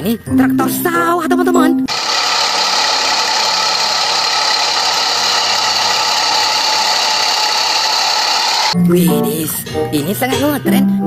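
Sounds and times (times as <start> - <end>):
tractor diesel engine droning: 1.9 - 8.8.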